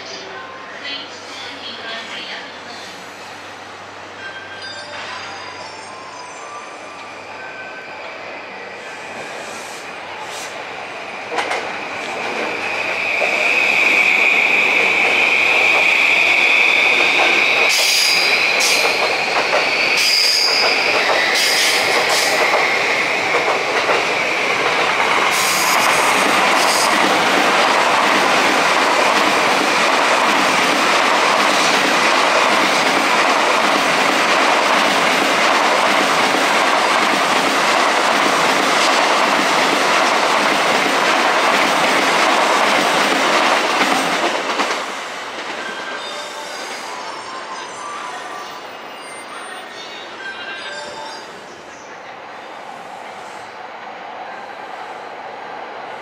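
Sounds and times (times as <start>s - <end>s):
train passing rush: 0.0s - 56.0s.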